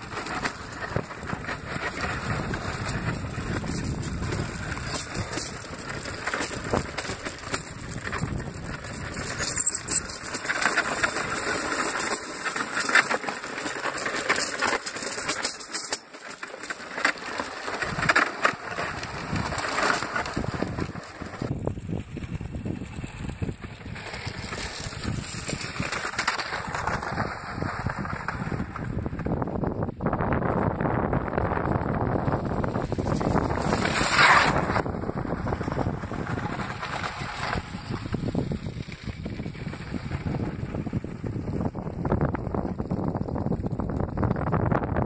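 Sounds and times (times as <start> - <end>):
wind buffeting microphone: 0.0 - 9.4, 18.9 - 45.0
iceboat runners scraping on ice: 0.0 - 29.5, 31.4 - 44.7.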